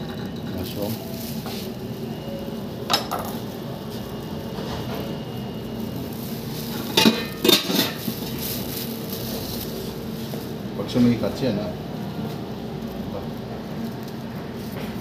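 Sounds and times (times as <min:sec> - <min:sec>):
steady background hum: 0:00.0 - 0:15.0
kitchenware clattering: 0:02.9 - 0:03.4, 0:06.9 - 0:08.1.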